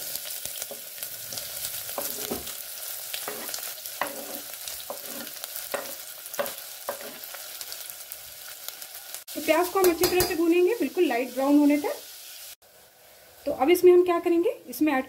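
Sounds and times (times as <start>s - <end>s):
onions sizzling in oil: 0.0s - 15.0s
spoon scraping a metal pot: 3.2s - 7.3s.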